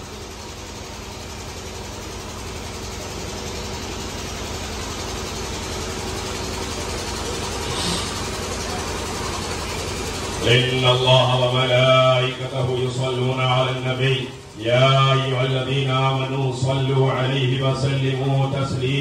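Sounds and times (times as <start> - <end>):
low rumbling hum: 0.0 - 19.0.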